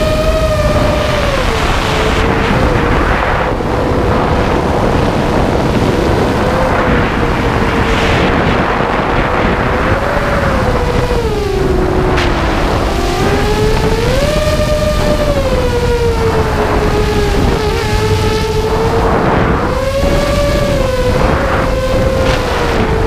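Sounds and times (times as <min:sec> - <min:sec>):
drone motors whining: 0:00.0 - 0:23.0
wind rush: 0:00.0 - 0:23.0.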